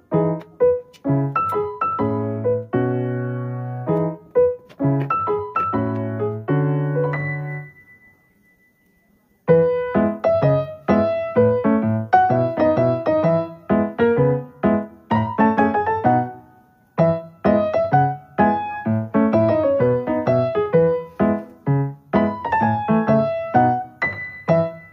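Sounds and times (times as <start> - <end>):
piano melody: 0.0 - 24.9.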